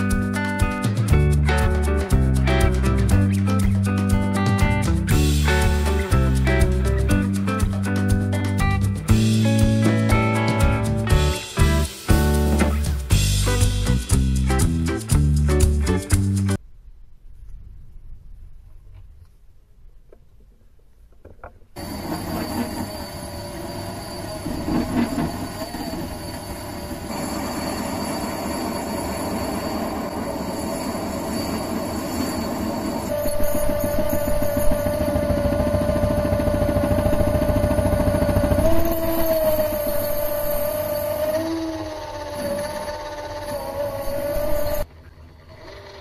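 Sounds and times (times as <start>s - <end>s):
metallic scraping squeal of cutting: 21.8s - 44.9s
lathe motor running: 21.8s - 46.0s.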